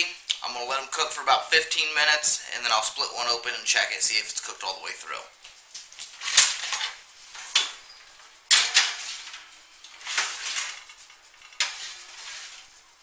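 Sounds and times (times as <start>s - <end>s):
metal pan clanking on oven racks: 8.5s - 9.4s, 11.5s - 12.5s.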